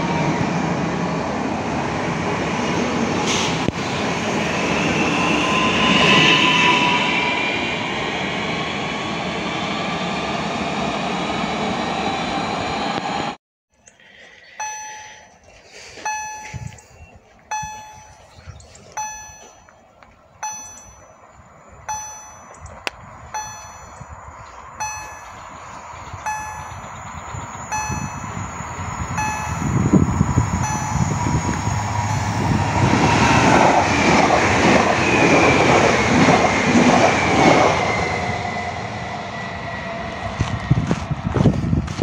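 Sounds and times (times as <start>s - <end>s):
electric train rumbling past: 0.0s - 13.4s, 20.4s - 41.9s
level crossing warning bell: 14.6s - 37.6s.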